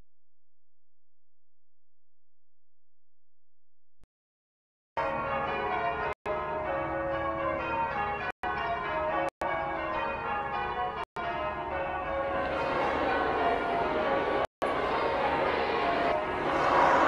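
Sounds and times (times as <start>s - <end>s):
church bells pealing: 5.0s - 17.0s.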